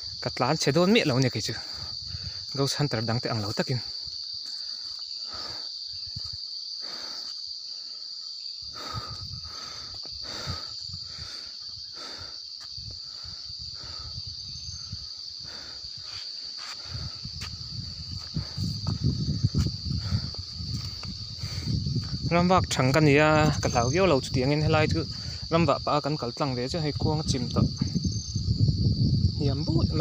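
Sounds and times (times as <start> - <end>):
crickets trilling: 0.0 - 30.0
soft footsteps on grass: 16.2 - 21.3.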